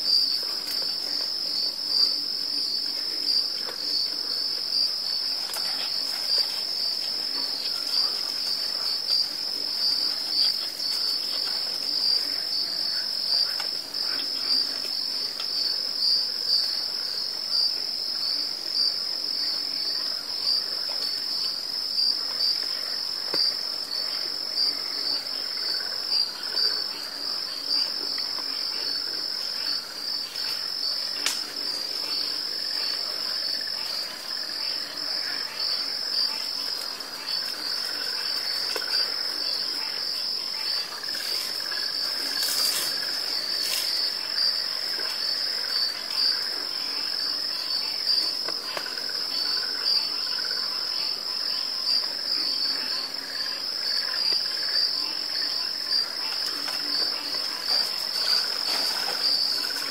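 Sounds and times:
crickets trilling: 0.0 - 59.9.

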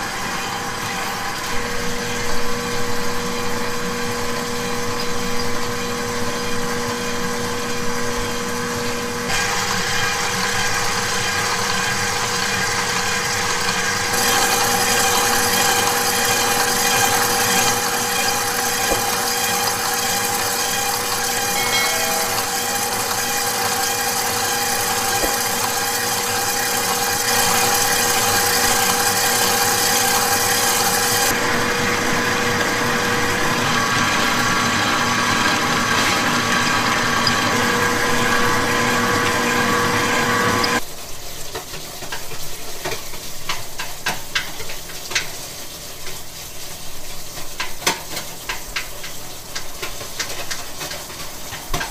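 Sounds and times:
stand mixer motor hum and whine: 0.0 - 40.8.

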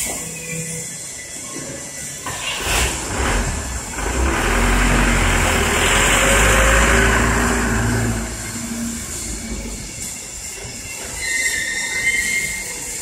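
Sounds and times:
workshop machinery rumbling: 2.6 - 11.2.

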